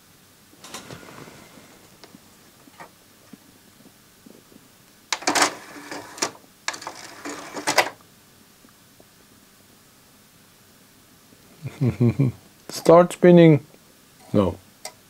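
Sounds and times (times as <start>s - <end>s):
cd mechanism whirring: 5.1s - 8.0s.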